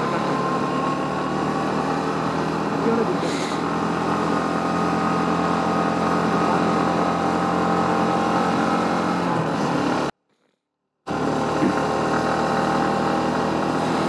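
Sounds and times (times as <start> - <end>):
motorcycle engine running: 0.0 - 10.5, 11.1 - 14.0.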